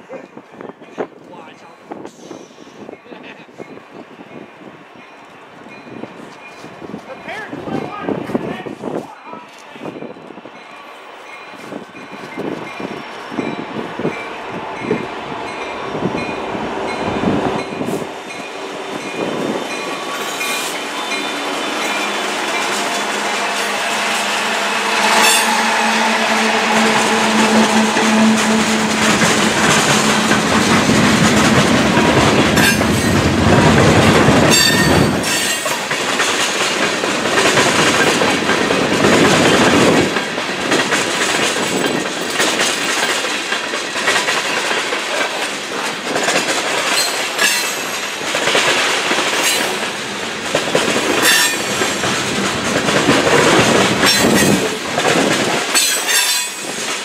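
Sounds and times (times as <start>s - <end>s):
train cars clickety-clack on rails: 0.0s - 57.0s
diesel locomotive drone: 3.7s - 57.0s
train wheel squeals: 51.2s - 51.9s, 54.0s - 54.8s, 55.8s - 56.9s.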